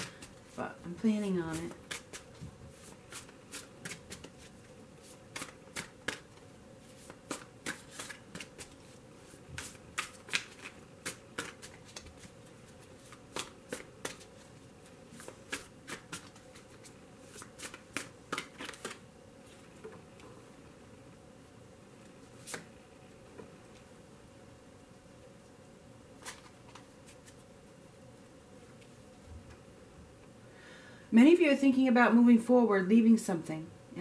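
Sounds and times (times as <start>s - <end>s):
cards being shuffled: 1.5s - 19.7s, 22.4s - 22.7s, 26.2s - 27.4s.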